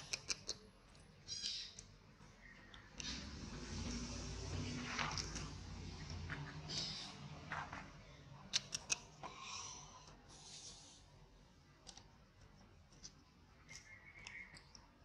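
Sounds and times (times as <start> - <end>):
sharp clicks: 8.5 - 9.1.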